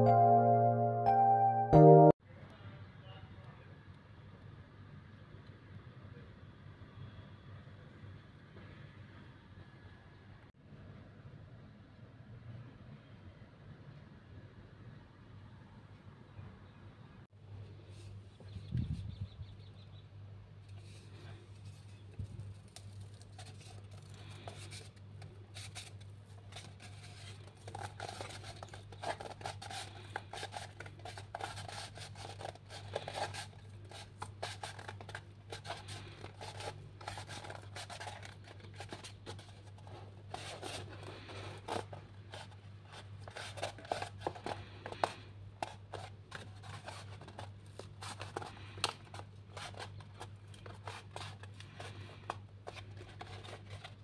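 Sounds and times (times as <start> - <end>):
cardboard tube crackling and creasing: 20.8 - 54.0.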